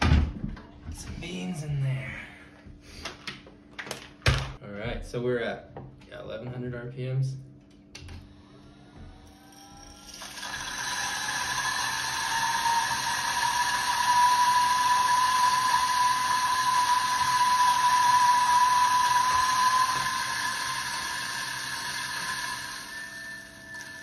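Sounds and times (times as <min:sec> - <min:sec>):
coffee grinder whirring: 0:08.3 - 0:24.0.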